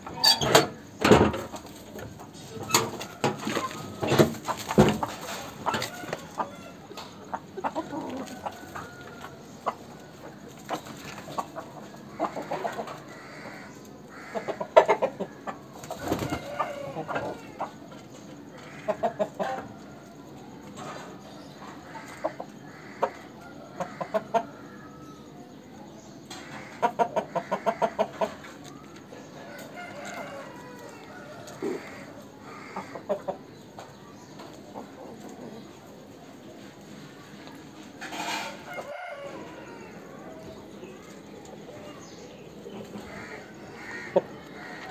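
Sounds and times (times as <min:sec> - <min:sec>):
chickens clucking: 0:00.0 - 0:44.9.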